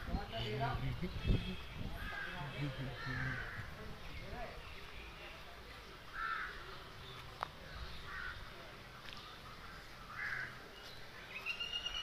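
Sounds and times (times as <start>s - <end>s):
crows cawing: 2.0s - 3.8s, 6.2s - 6.6s, 8.1s - 8.4s, 9.7s - 10.6s.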